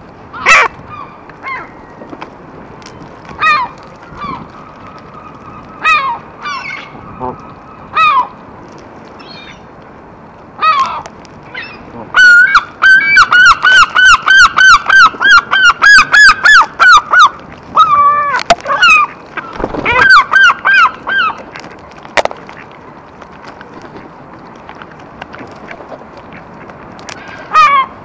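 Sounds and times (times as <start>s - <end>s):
gulls and geese calling: 0.3s - 2.0s, 3.3s - 8.4s, 10.6s - 22.7s, 25.5s - 28.0s.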